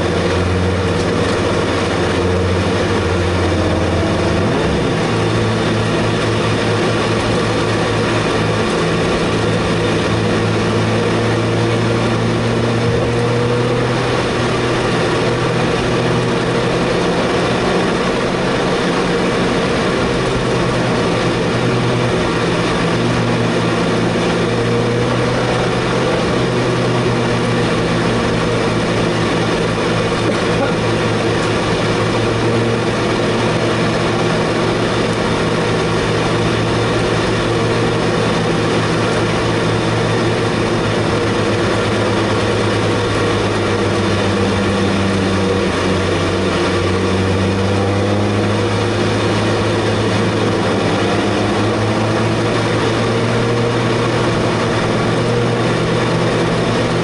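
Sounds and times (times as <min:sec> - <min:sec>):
car engine running steadily: 0:00.0 - 0:57.0.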